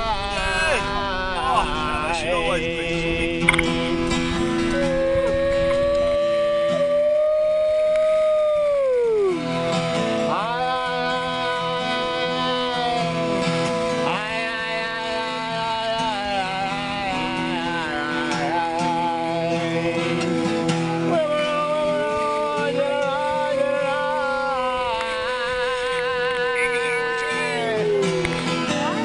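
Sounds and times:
voice singing long sliding notes: 0.0s - 9.6s, 21.1s - 29.0s
backing music: 10.2s - 29.0s.

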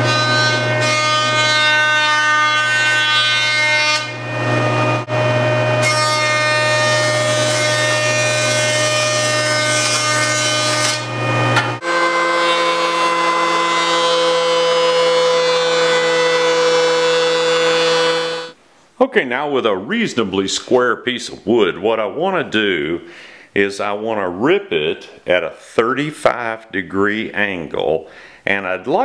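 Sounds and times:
jointer cutting wood: 0.0s - 18.6s
thickness planer humming: 0.0s - 18.6s.

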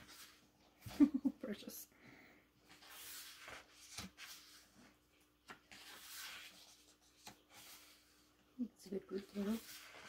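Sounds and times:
book pages rustling: 0.0s - 1.0s, 2.6s - 8.3s, 9.0s - 10.0s.

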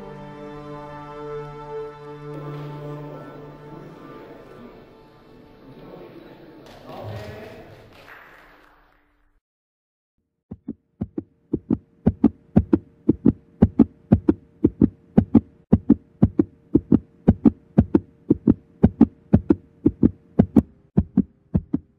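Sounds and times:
low thumping beat: 10.5s - 21.9s.

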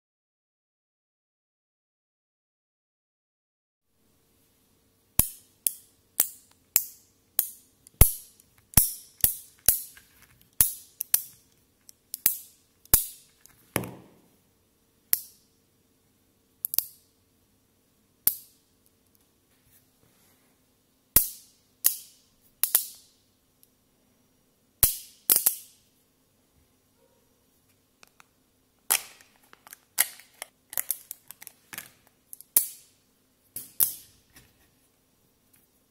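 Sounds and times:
magnet balls snapping together: 5.2s - 14.1s, 16.6s - 17.0s, 18.3s - 18.6s, 21.2s - 23.1s, 24.8s - 25.8s, 28.9s - 32.9s.

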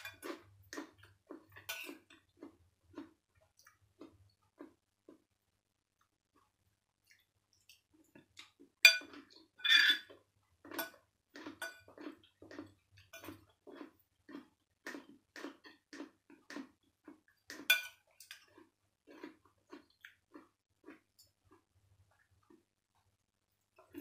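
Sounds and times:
cutlery clinking on ceramic plates: 1.6s - 2.1s, 8.8s - 10.1s, 17.7s - 18.4s.

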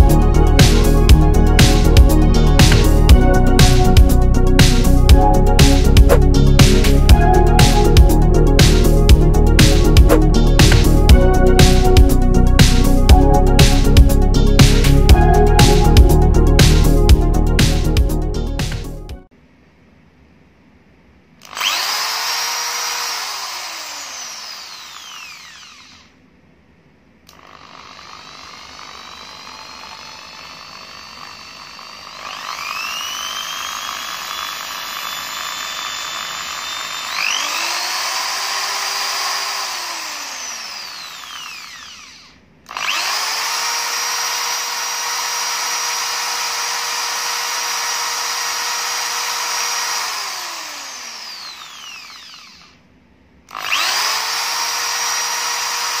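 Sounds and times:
hammer drill motor whining: 0.0s - 17.0s, 21.4s - 26.2s, 27.3s - 52.8s, 53.5s - 56.0s.

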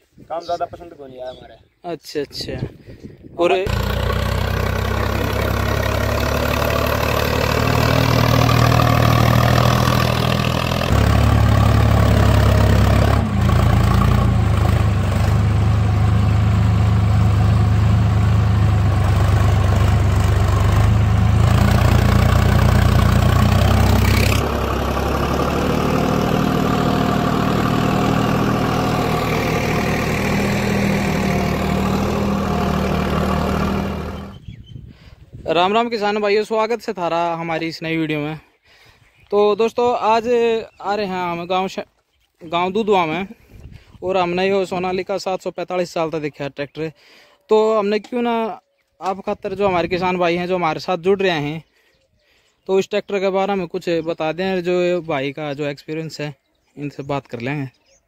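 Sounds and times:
tractor diesel engine running: 3.7s - 34.5s.

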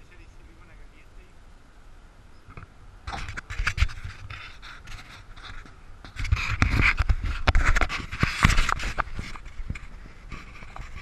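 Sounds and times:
rustling and scraping on camera: 2.4s - 11.0s.

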